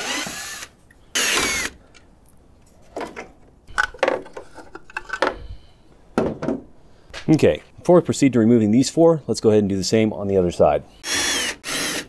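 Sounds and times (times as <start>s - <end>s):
cordless drill whining: 0.0s - 1.8s, 11.0s - 12.0s.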